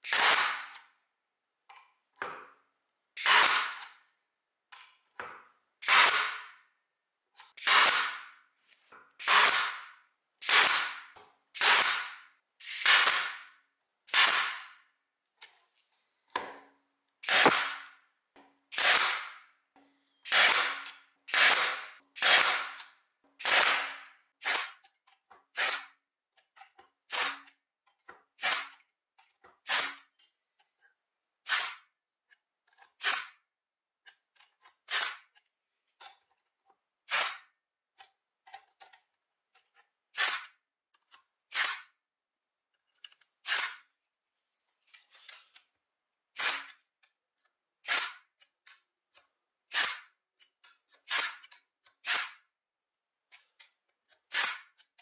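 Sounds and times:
pneumatic stapler firing: 0.0s - 0.8s, 3.2s - 4.0s, 5.8s - 6.6s, 7.6s - 8.3s, 9.2s - 13.5s, 14.1s - 14.8s, 17.2s - 17.9s, 18.7s - 19.4s, 20.3s - 24.8s, 25.6s - 25.9s, 27.1s - 27.5s, 28.4s - 28.8s, 29.7s - 30.0s, 31.4s - 31.8s, 33.0s - 33.3s, 34.9s - 35.2s, 37.1s - 37.4s, 40.2s - 40.5s, 41.5s - 41.9s, 43.4s - 43.8s, 46.4s - 46.7s, 47.8s - 48.2s, 49.7s - 50.0s, 51.1s - 52.4s, 54.3s - 54.7s.

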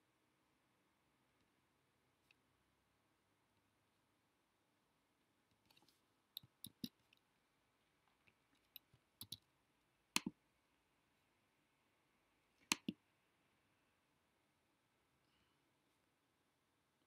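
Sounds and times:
mouse and keyboard clicks: 5.6s - 7.2s, 8.6s - 9.5s, 10.2s - 10.4s, 12.6s - 13.0s.

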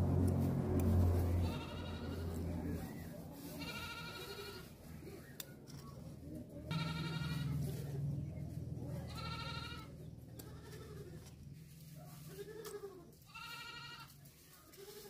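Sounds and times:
goat bleating: 0.1s - 2.8s, 3.4s - 4.8s, 6.7s - 7.9s, 8.9s - 11.4s, 12.0s - 15.0s.

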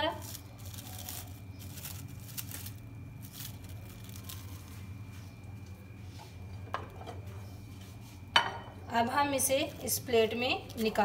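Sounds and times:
plastic bag crinkling: 0.0s - 5.8s, 9.3s - 11.0s
steady low hum: 0.0s - 11.0s.

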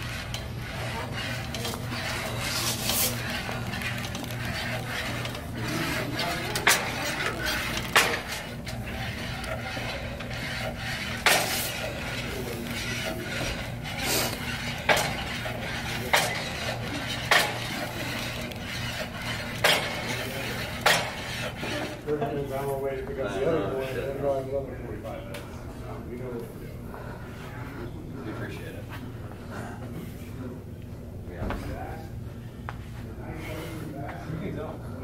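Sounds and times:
weight stack clanking: 0.0s - 22.1s
steady low hum: 0.0s - 35.0s.

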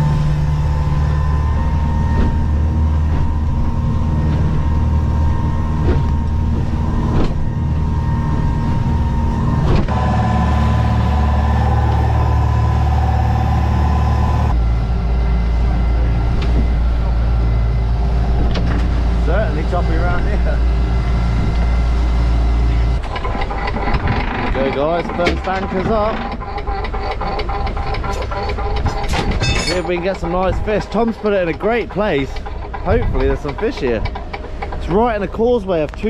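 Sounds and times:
boat engine droning: 0.0s - 36.0s.

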